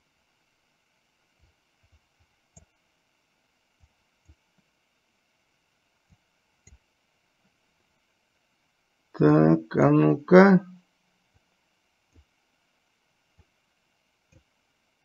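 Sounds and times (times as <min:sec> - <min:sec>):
computer mouse clicks: 0:01.8 - 0:02.7, 0:06.1 - 0:06.8.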